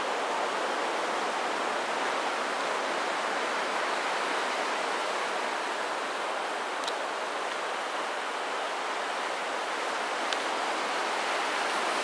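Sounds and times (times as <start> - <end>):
distant ocean surf: 0.0 - 12.0.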